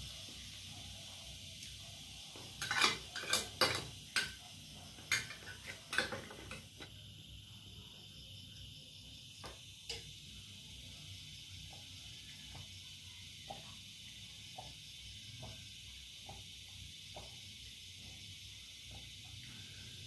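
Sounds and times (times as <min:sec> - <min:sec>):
cutlery clinking on a plate: 0:02.6 - 0:04.4, 0:05.1 - 0:06.6.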